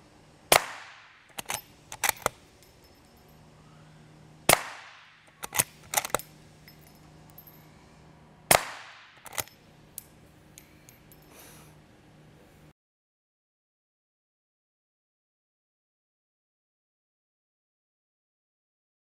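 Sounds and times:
suppressed rifle shots: 0.5 - 2.4, 4.5 - 6.2, 8.5 - 9.4
rifle bolt metallic clicks: 1.3 - 2.7, 5.2 - 7.5, 9.1 - 11.1.

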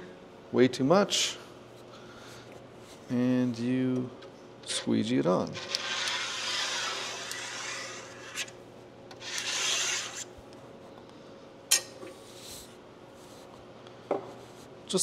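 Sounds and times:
squeegee scraping metal stencil: 5.5 - 8.6, 9.2 - 10.3.

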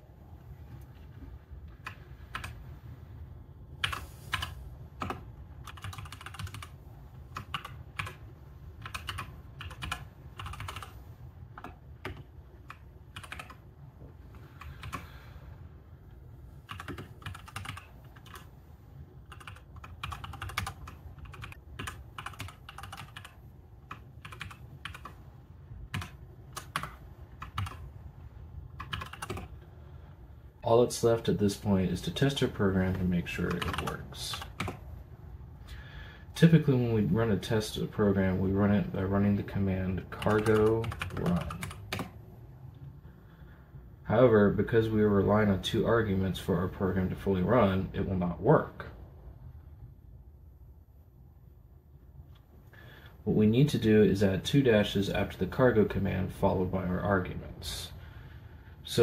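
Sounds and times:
low steady hum: 0.0 - 59.0
keyboard typing clicks: 3.8 - 8.2, 8.8 - 10.9, 11.6 - 13.6, 16.7 - 18.5, 19.3 - 25.2, 25.9 - 27.8, 28.8 - 29.5, 33.5 - 34.8, 40.2 - 42.2.

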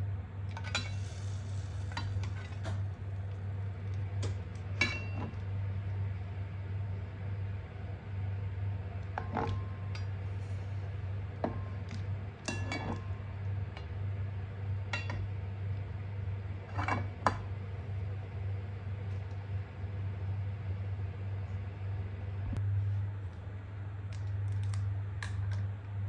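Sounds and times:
steady low hum: 0.0 - 26.0
metal utensils clinking: 12.5 - 13.1.

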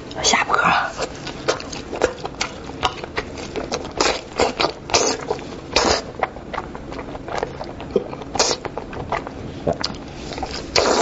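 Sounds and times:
wet sucking and smacking: 1.0 - 11.0
slurping: 7.9 - 11.0.

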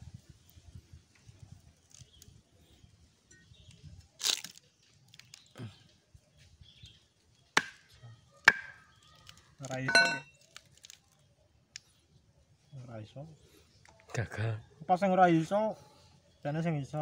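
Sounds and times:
knife cracking hard fruit husks: 4.2 - 5.7, 7.6 - 11.8.

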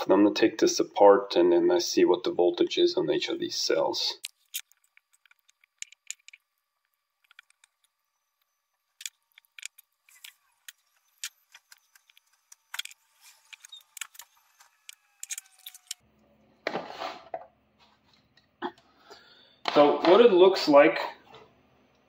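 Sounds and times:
plastic and metal clicks and scrapes: 9.0 - 16.0
utility knife cutting wrapping: 11.1 - 16.0.

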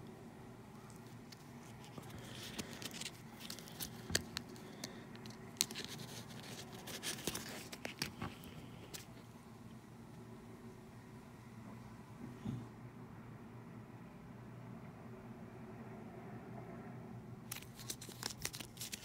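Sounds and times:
plastic rustling: 1.1 - 9.1, 17.5 - 19.0.

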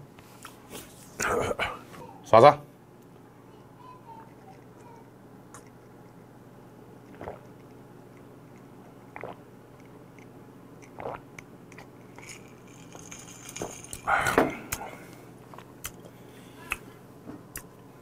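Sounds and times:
person gulping a drink: 7.0 - 7.8, 8.6 - 16.1.

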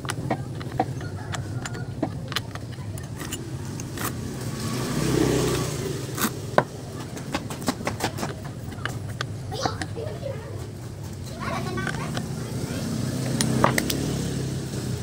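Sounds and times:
wrench clicking on metal: 0.0 - 4.2
motorcycle passing by: 0.0 - 8.9, 11.2 - 15.0.

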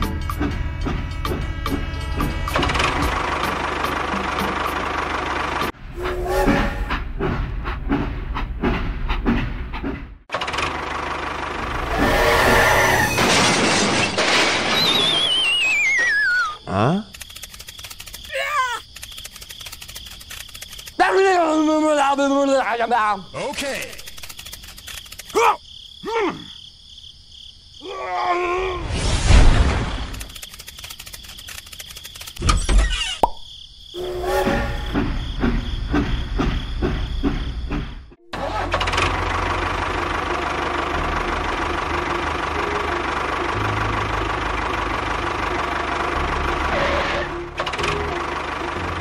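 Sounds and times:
steady mechanical din: 0.1 - 14.6
squeaky cartoon character calls: 15.4 - 16.6, 18.3 - 18.9, 32.8 - 33.2
wordless cartoon babble: 38.3 - 38.8.

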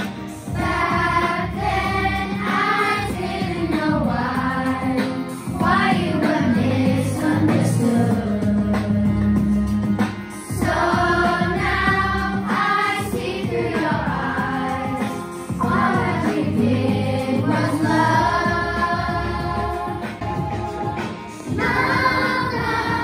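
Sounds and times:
children's choir singing: 0.5 - 9.0, 10.6 - 23.0
instrumental accompaniment: 7.8 - 23.0.

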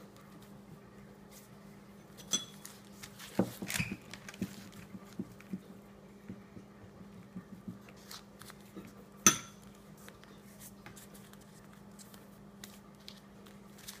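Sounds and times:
utensil clinking on a dish: 2.2 - 2.7, 9.2 - 9.6.

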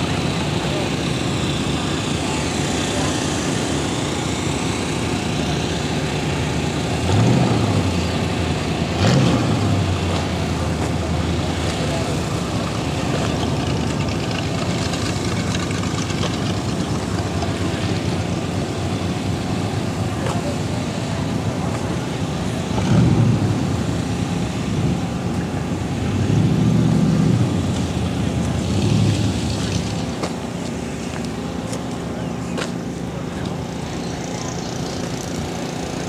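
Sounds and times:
steady background noise: 0.0 - 36.0
vehicle engine running: 0.0 - 36.0.

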